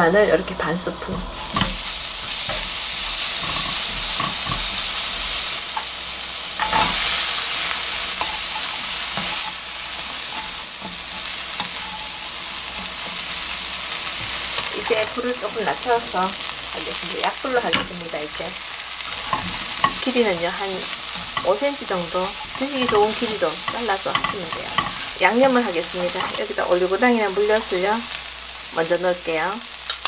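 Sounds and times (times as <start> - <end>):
food sizzling in hot oil: 0.0 - 30.0
spatula scraping and knocking pan: 1.2 - 18.1, 18.9 - 26.4.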